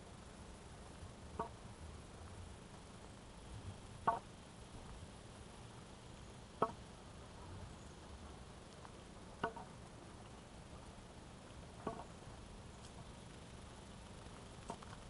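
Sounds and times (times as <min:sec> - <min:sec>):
faint background hiss: 0:00.0 - 0:15.0
walking stick tapping on pavement: 0:04.0 - 0:04.2, 0:08.7 - 0:10.4, 0:11.8 - 0:12.2.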